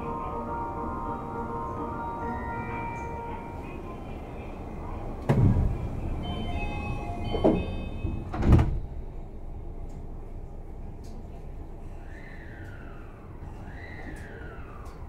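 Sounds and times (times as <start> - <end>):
train hum: 0.0 - 15.0
sliding doors thudding shut: 5.2 - 6.0, 7.3 - 8.9
door chime: 6.2 - 8.4.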